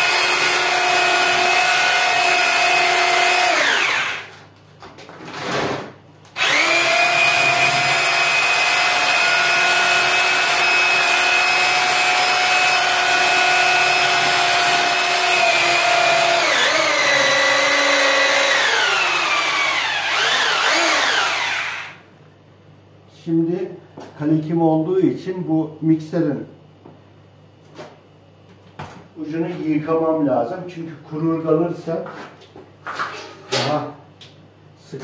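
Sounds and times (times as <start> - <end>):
electric drill mixing plaster: 0.0 - 4.4, 6.4 - 22.0.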